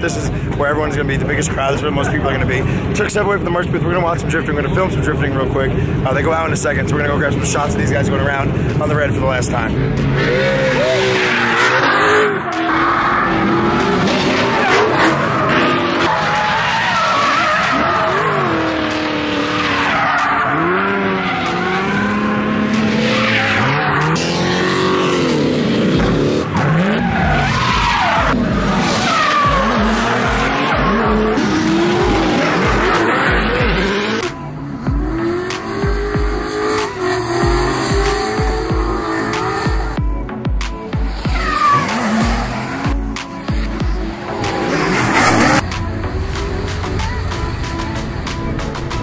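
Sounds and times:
car engines revving: 0.0 - 49.0
tires squealing: 8.1 - 40.0, 40.9 - 45.8
bass beat music: 23.6 - 49.0.

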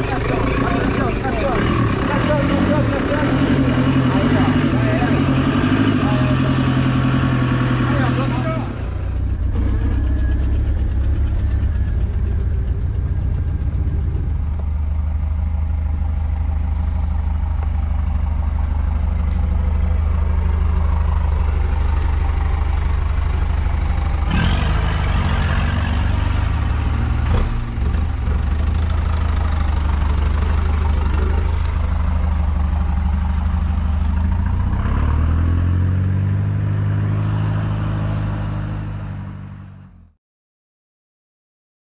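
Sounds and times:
jeep engine running: 0.0 - 40.1.

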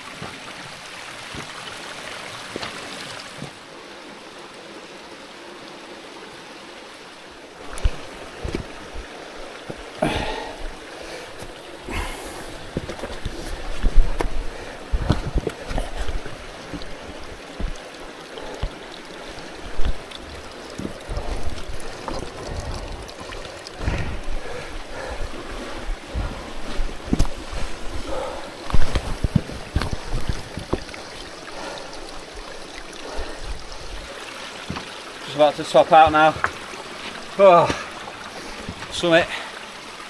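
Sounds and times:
boots and hands scuffing on rock: 11.3 - 18.8, 26.1 - 30.8
thumps against microphone: 12.7 - 16.9.

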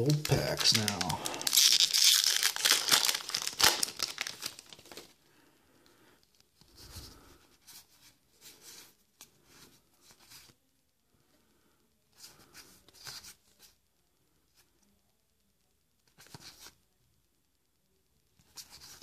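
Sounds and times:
wrapper tearing and crinkling: 0.0 - 5.2.

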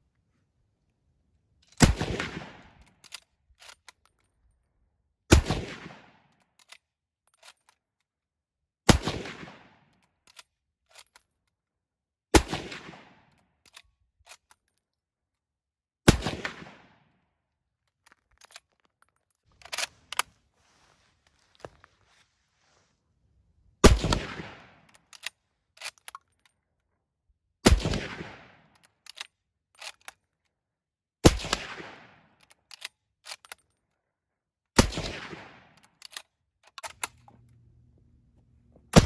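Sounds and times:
rifle shots: 1.8 - 2.9, 5.3 - 6.2, 8.9 - 9.8, 12.4 - 13.2, 16.1 - 17.0, 23.8 - 24.9, 27.6 - 28.7, 31.2 - 32.2, 34.8 - 35.8
rifle bolt clicks: 24.9 - 26.6, 28.7 - 30.2, 35.8 - 37.6.

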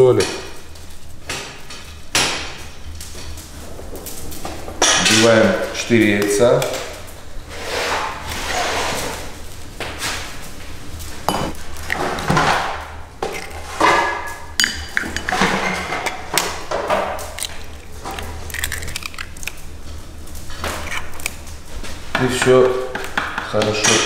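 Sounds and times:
knife clinking on steel bowl: 11.3 - 11.6, 14.2 - 16.5
knife tapping eggshells: 14.6 - 17.9, 22.1 - 24.0.

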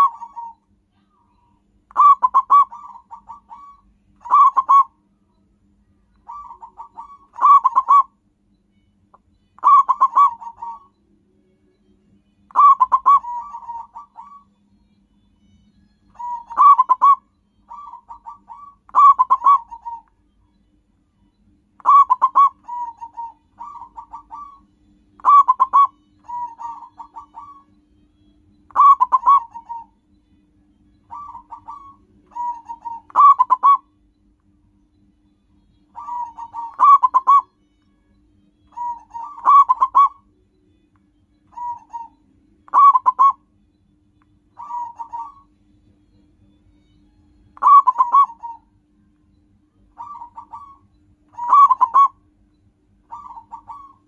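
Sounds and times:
dove cooing song: 0.0 - 0.7, 1.3 - 5.1, 6.1 - 8.2, 9.6 - 11.0, 12.5 - 14.7, 16.1 - 20.2, 21.7 - 28.0, 28.7 - 30.0, 30.8 - 34.1, 35.8 - 37.7, 38.7 - 40.3, 41.5 - 43.5, 44.5 - 48.8, 49.8 - 52.4, 53.0 - 54.0.

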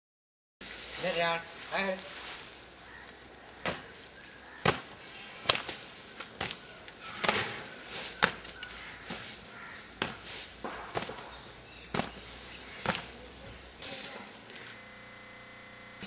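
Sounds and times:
sharp whacks: 4.6 - 4.9, 7.2 - 7.6, 10.0 - 11.3.

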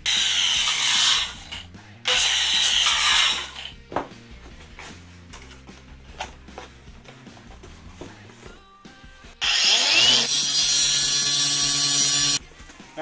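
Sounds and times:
angle grinder cutting metal: 0.0 - 3.7, 9.4 - 12.4
faint background music: 0.0 - 13.0.

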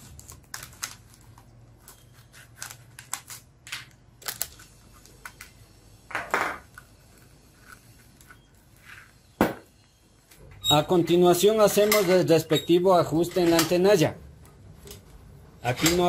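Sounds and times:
plastic blister pack crackling: 0.0 - 5.5.

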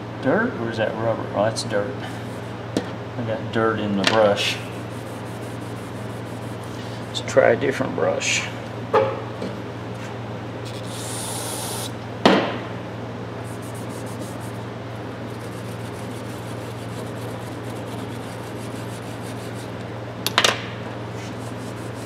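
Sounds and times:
brush scrubbing rubber: 4.6 - 7.2, 13.4 - 14.6, 15.2 - 19.8, 21.2 - 22.0.

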